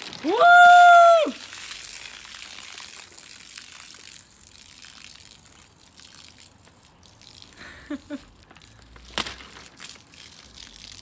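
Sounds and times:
water pouring onto grass: 0.0s - 11.0s.

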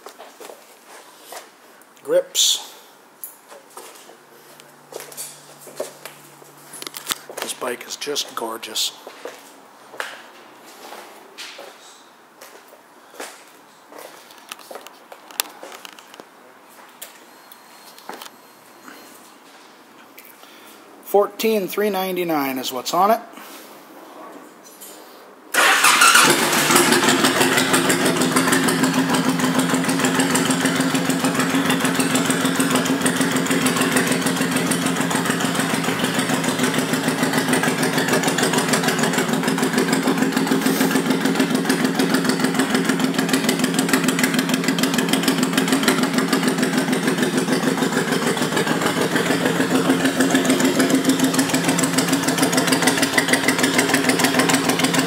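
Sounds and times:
motorcycle engine idling: 25.6s - 55.0s.

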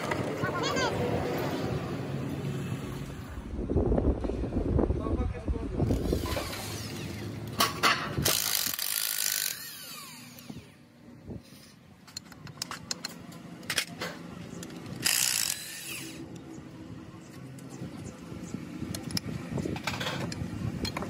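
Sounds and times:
metal tool clicks and knocks: 12.0s - 14.0s.

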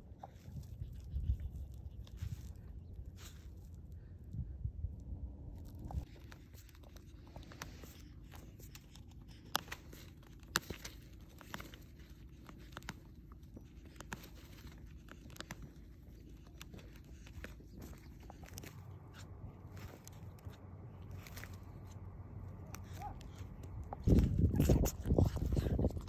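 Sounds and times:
low steady rumble: 0.0s - 26.0s
feathers tearing and clicks: 5.6s - 26.0s.

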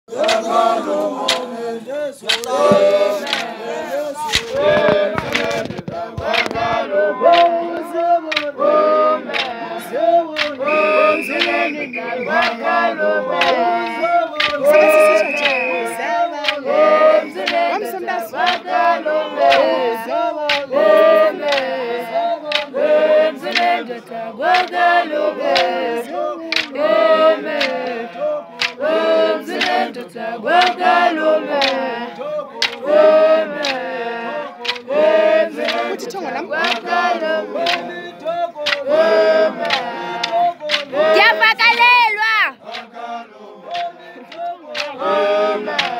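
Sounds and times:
group singing unaccompanied: 0.1s - 45.9s
sharp knocks: 2.3s - 3.4s, 4.3s - 6.8s.

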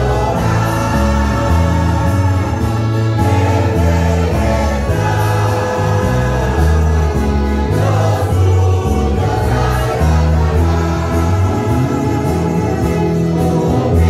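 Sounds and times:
choir singing a hymn: 0.0s - 14.0s
mandolins and guitars: 0.0s - 14.0s
steady bass line: 0.0s - 14.0s.

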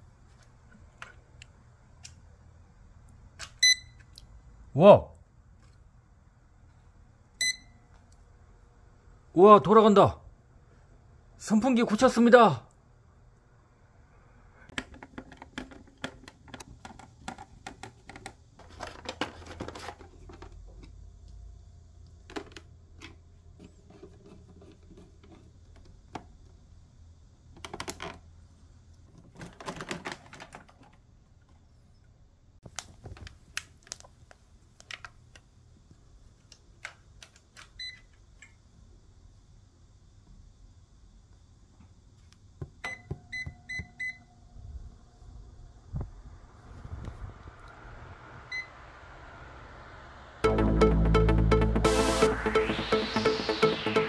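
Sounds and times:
hands handling plastic fan base: 14.7s - 20.9s.

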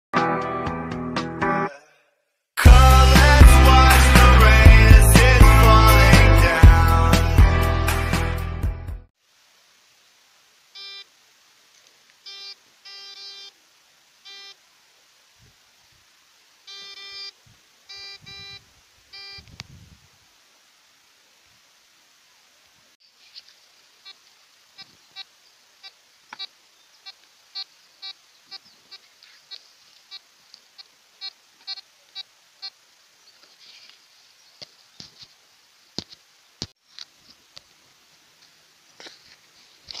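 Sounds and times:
faint crackling clicks: 11.7s - 12.2s, 26.3s - 32.3s, 36.0s - 37.8s
short buzzy electronic beeps: 12.3s - 13.5s, 16.7s - 18.6s, 19.2s - 19.4s.

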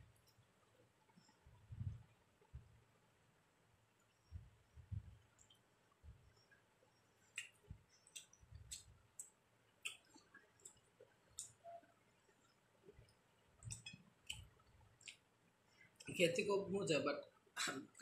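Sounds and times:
soft low thumps: 1.5s - 2.8s, 4.3s - 5.2s
mouth chewing clicks and smacks: 7.3s - 11.8s, 13.0s - 15.3s.

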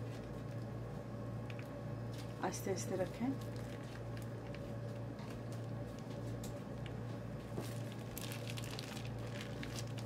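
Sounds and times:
steady low hum: 0.0s - 10.0s
plastic piping bag crinkling: 3.0s - 10.0s.

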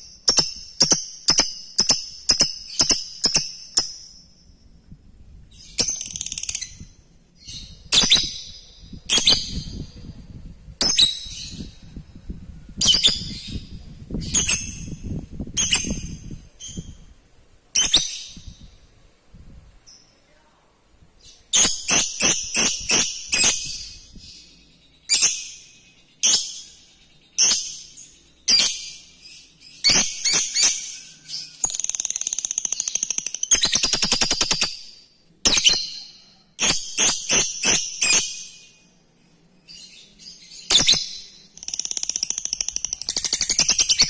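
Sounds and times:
lovebird shrill calls: 0.0s - 4.2s, 12.8s - 15.0s, 15.6s - 17.0s, 21.6s - 24.4s, 29.7s - 34.9s, 35.5s - 38.5s, 40.6s - 44.0s.

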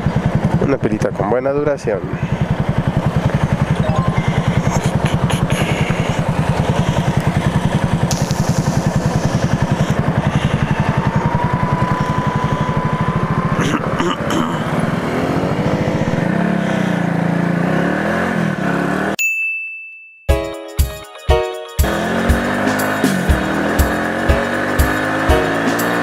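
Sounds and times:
motorcycle engine running steadily: 0.0s - 3.8s, 4.4s - 17.8s, 21.8s - 26.0s.

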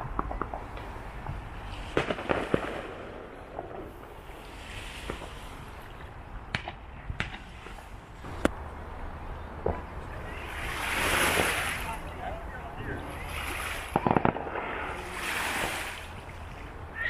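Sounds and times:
fireworks bangs: 0.0s - 5.5s, 6.5s - 8.6s, 9.5s - 12.1s, 13.2s - 15.9s
background hiss: 0.0s - 17.0s.

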